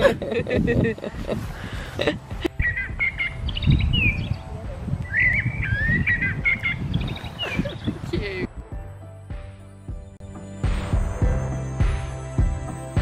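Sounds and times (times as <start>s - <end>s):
wind rumble on microphone: 0.0s - 8.9s.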